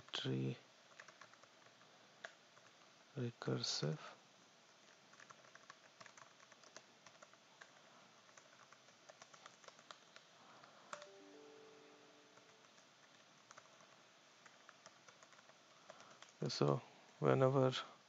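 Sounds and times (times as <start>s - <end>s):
keyboard typing: 0.9s - 2.9s, 4.8s - 16.6s.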